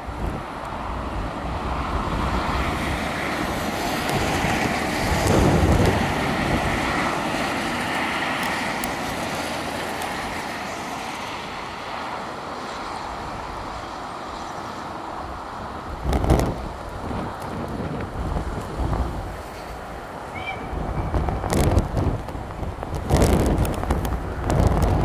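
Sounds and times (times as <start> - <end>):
wind buffeting microphone: 0.0 - 10.6, 15.1 - 25.0
steam locomotive running: 2.1 - 11.7.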